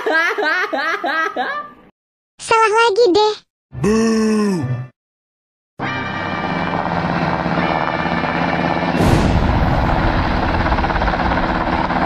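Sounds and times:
cartoon explosion sound effect: 9.0s - 10.7s.

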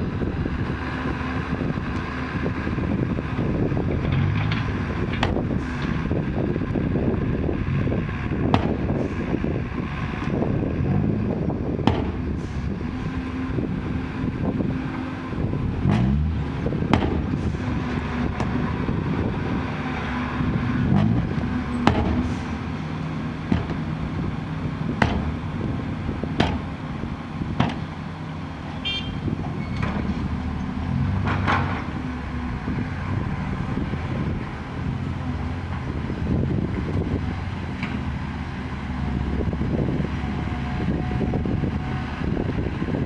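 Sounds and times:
diesel engine revving: 0.0s - 43.0s
sharp knocks: 4.5s - 5.4s, 8.5s - 8.8s, 11.8s - 12.2s, 16.9s - 17.3s, 21.8s - 22.3s, 23.5s - 23.8s, 25.0s - 25.4s, 26.4s - 26.7s, 27.6s - 27.9s.

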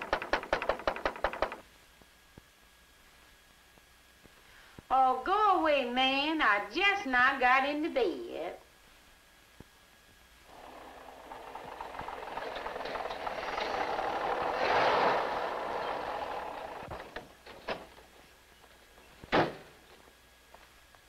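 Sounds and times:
motor vehicle passing: 10.5s - 17.0s.

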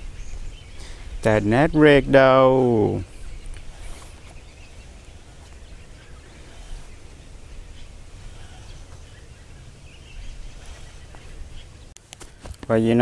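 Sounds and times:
steady low rumble: 0.0s - 11.9s
faint bird chirps: 2.8s - 11.9s.

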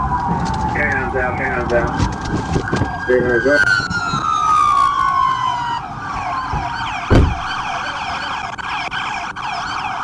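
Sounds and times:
police sirens wailing and yelping: 0.0s - 10.0s
loud thump: 6.6s - 7.7s.

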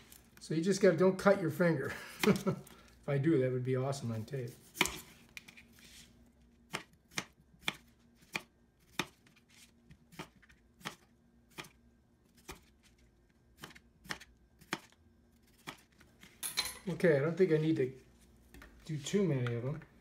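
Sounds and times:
knife slicing potatoes: 4.5s - 6.0s, 6.6s - 9.4s, 10.0s - 16.0s.

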